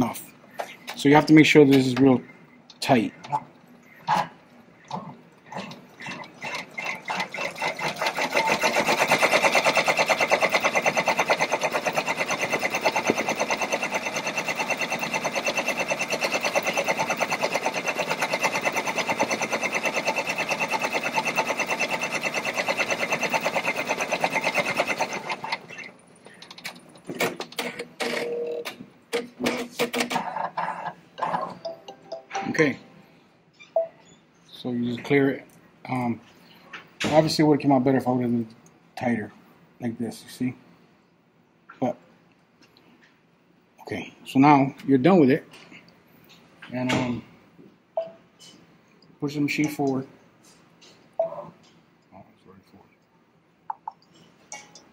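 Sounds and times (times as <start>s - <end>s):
embroidery machine stitching: 5.6s - 25.9s.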